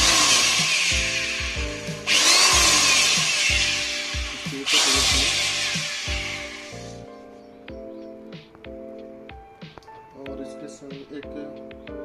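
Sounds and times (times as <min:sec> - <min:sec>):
electric drill running: 0:00.0 - 0:07.0.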